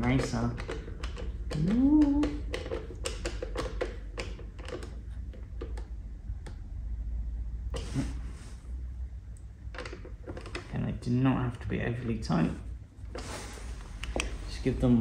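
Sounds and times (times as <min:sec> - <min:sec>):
hand driver clicks and taps: 0:00.0 - 0:06.6
man humming: 0:01.6 - 0:02.4.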